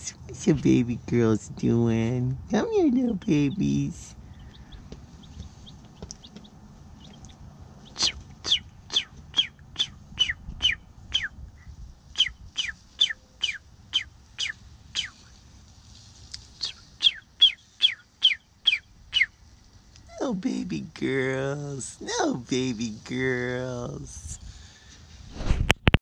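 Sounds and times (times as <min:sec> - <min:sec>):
chicks peeping: 0:03.0 - 0:15.4, 0:16.3 - 0:20.0.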